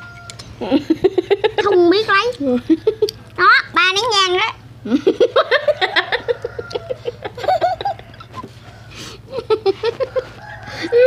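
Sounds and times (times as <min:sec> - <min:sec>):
girls giggling: 0:00.6 - 0:03.2, 0:04.8 - 0:11.0.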